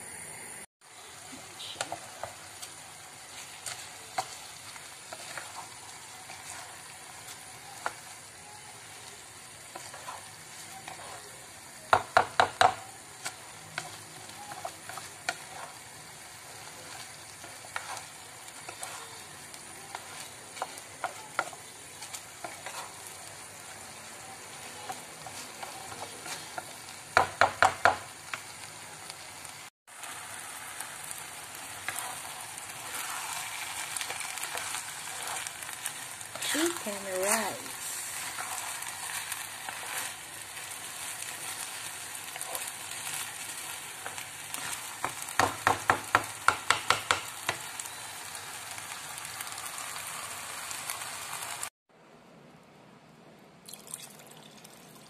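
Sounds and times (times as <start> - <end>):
food sizzling: 0.0 - 51.8
spatula scraping frying pan: 1.7 - 8.2, 9.6 - 28.5, 30.5 - 48.0
spatula knocking on pan: 11.9 - 12.8, 27.1 - 28.1, 45.0 - 47.6.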